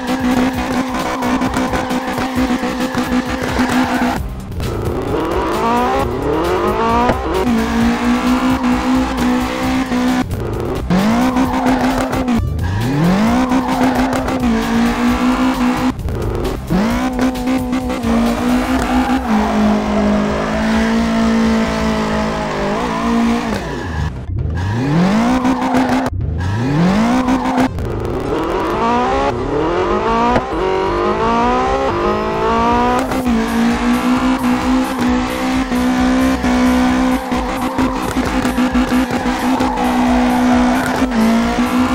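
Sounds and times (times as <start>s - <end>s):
tyre squeals: 0.0s - 4.2s, 10.9s - 24.1s, 32.6s - 41.9s
race car engine revving: 0.0s - 41.9s.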